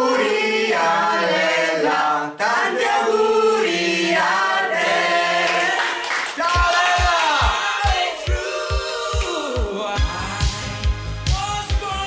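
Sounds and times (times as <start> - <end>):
group singing in harmony: 0.0 - 6.3, 7.0 - 10.8
drum beat: 6.4 - 12.0.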